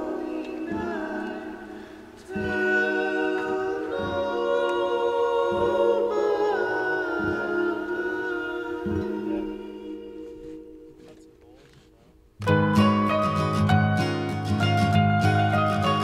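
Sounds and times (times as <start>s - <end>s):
voices singing in harmony: 0.0s - 11.4s.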